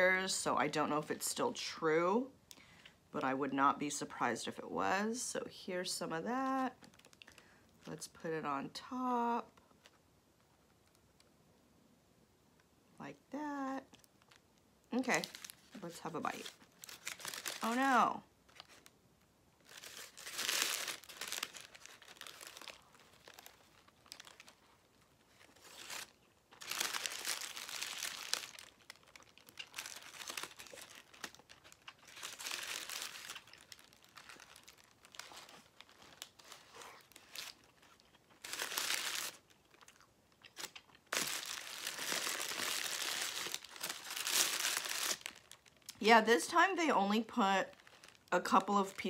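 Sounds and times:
paper wrapper crinkling: 13.9 - 19.0, 19.6 - 49.0.

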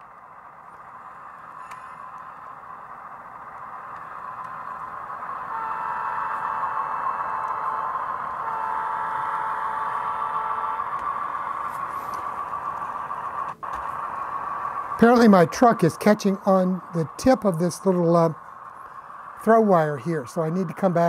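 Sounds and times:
model locomotive engine sound: 0.0 - 21.0
locomotive horn blasts: 5.3 - 11.0.

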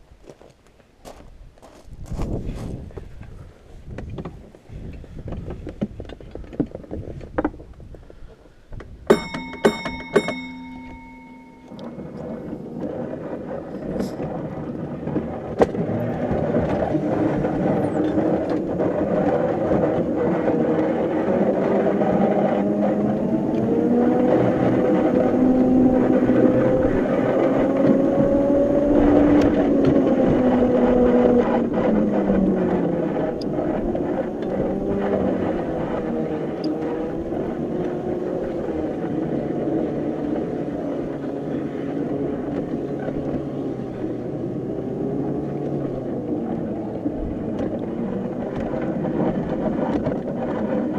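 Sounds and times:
tram rolling rumble: 9.0 - 50.9
bell ringing: 9.1 - 12.6
electric drive whining: 9.1 - 50.9.

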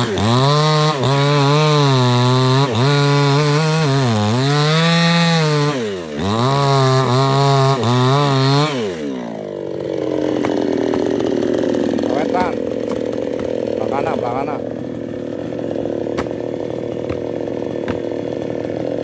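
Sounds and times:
chainsaw sawing through trunk: 0.0 - 19.0.

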